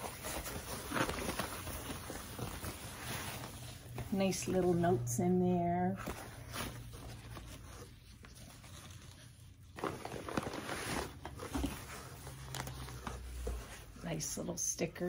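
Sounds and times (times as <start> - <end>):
paper and plastic rustling: 0.0 - 4.8, 5.9 - 14.2.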